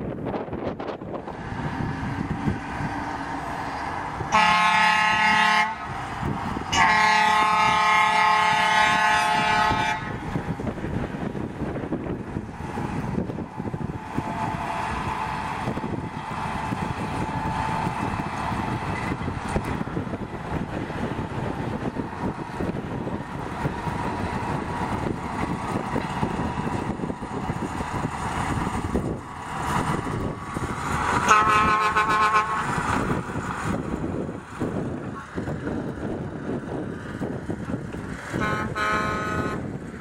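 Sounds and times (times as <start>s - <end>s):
locomotive engine and wheels running: 0.0s - 40.0s
diesel locomotive horn: 4.2s - 6.0s, 6.6s - 10.3s, 31.2s - 33.2s, 38.3s - 39.8s.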